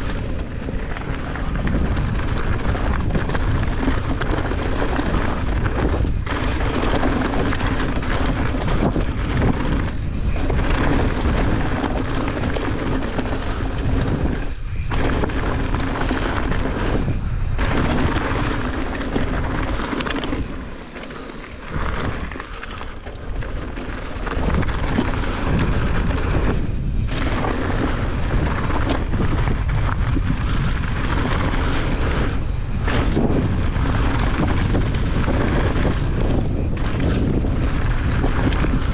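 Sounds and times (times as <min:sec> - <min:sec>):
wind rushing on microphone: 0:00.0 - 0:38.9
tyres crunching over gravel: 0:17.6 - 0:26.4.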